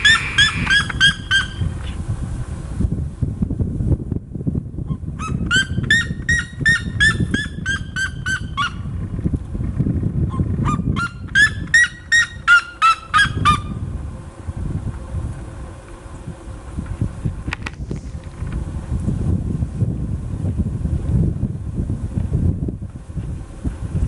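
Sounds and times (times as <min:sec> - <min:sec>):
birds yelping calls: 0:00.0 - 0:02.0, 0:04.9 - 0:08.9, 0:10.3 - 0:13.8
low rumbling noise: 0:00.0 - 0:24.0.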